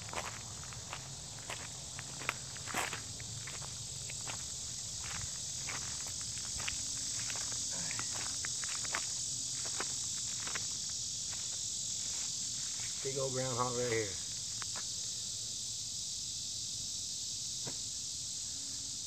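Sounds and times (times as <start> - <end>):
footsteps on grass: 0.0 - 13.2
crickets chirping: 0.0 - 19.0.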